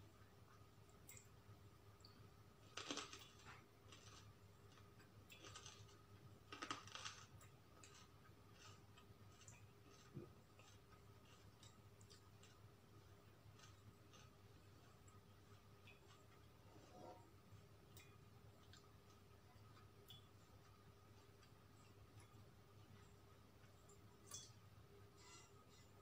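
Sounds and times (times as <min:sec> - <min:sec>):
chewing crunches: 0:02.6 - 0:12.6, 0:13.5 - 0:17.0.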